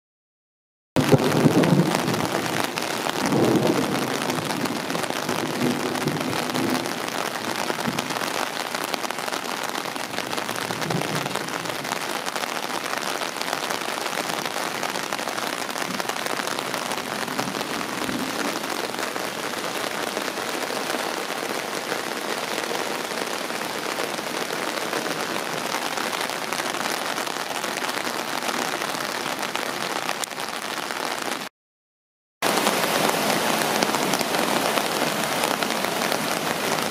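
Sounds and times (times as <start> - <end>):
thunder rumble: 1.0 - 7.0
heavy rain falling: 1.0 - 31.5, 32.4 - 36.9.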